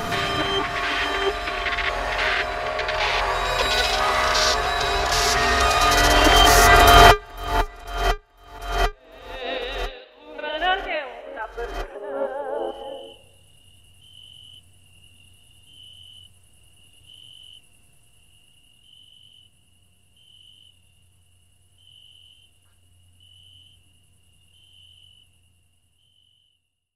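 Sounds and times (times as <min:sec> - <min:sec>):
cricket chirping: 0:10.6 - 0:26.9.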